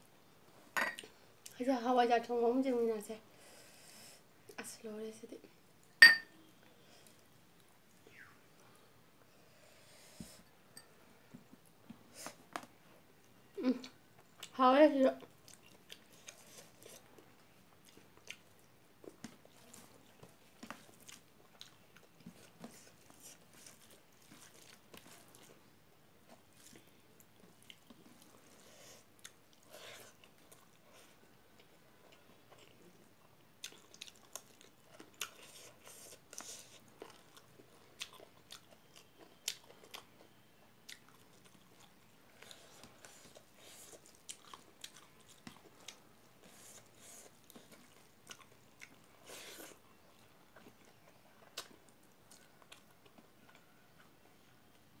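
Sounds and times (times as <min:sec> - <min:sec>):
person chewing: 0:15.2 - 0:17.2, 0:17.8 - 0:25.6, 0:26.3 - 0:53.8.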